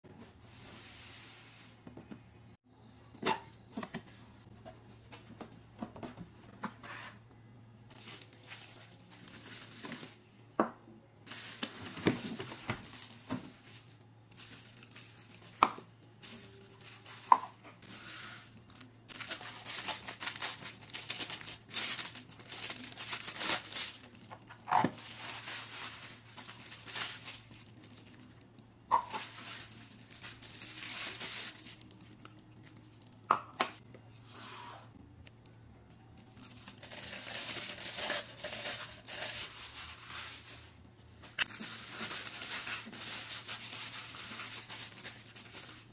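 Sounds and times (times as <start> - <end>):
plastic bags crinkling: 7.9 - 10.3, 11.3 - 33.3, 36.1 - 45.9.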